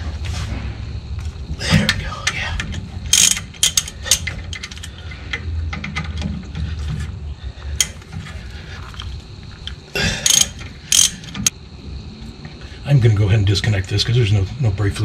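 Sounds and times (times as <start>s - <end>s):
wrench clicking on metal: 2.2s - 6.1s, 10.2s - 11.5s.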